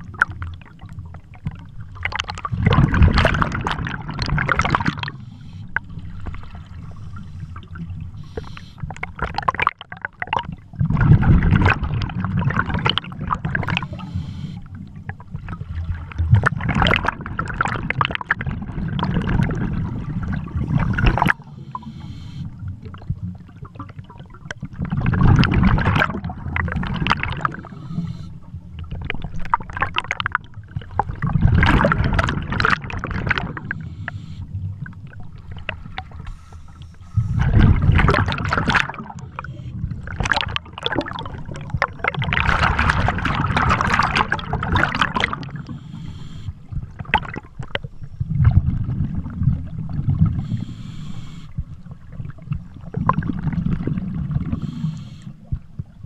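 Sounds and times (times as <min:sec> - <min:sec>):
low underwater rumble: 0:00.0 - 0:56.0
diver breath bubbling: 0:02.3 - 0:09.5, 0:10.8 - 0:14.9, 0:15.6 - 0:22.7, 0:24.9 - 0:28.6, 0:31.0 - 0:47.5, 0:48.5 - 0:51.8, 0:52.8 - 0:55.6.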